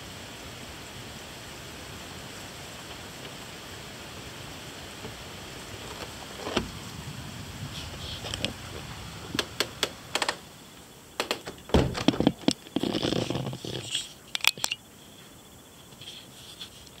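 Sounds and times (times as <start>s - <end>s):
faint steady hiss: 0.0s - 17.0s
rubbing: 11.2s - 14.8s, 15.9s - 17.0s
device handling clicks and knocks: 14.3s - 14.8s.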